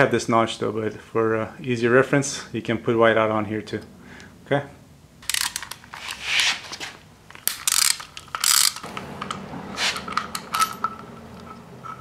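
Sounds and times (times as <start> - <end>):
socket ratchet clicking: 5.2 - 5.8, 7.3 - 12.0.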